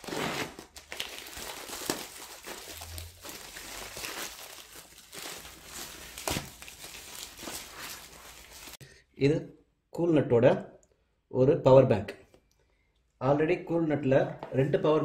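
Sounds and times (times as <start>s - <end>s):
plastic and bubble wrap crinkling: 0.0s - 8.8s.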